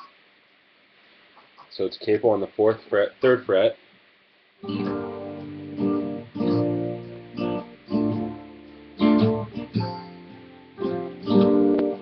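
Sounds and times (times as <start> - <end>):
guitar strumming slow chords: 4.6 - 12.0.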